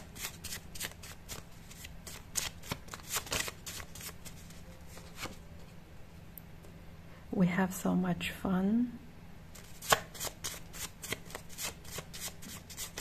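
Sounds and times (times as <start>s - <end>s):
playing cards shuffled by hand: 0.0s - 5.4s, 9.6s - 13.0s.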